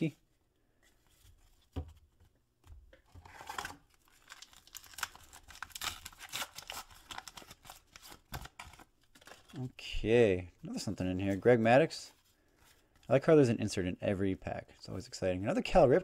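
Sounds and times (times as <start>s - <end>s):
wrapper tearing and crinkling: 3.3s - 9.6s.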